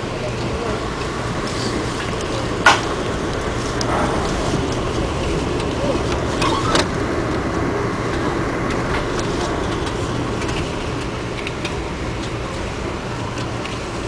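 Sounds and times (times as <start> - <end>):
train wheels rumbling on rail: 0.0 - 14.0
sharp knock: 3.9 - 5.2.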